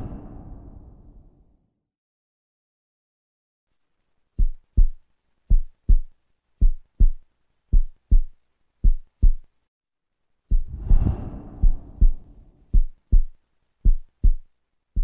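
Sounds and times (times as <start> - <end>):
heartbeat double thumps: 4.4 - 9.5, 10.5 - 15.0.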